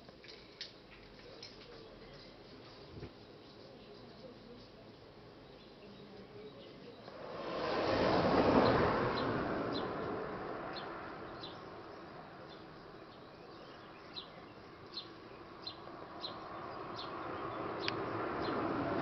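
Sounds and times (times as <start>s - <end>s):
small bird chirping: 8.6s - 18.7s.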